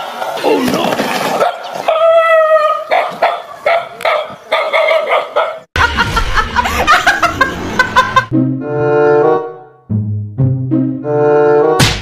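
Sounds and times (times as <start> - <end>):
dog barking: 1.3 - 5.7.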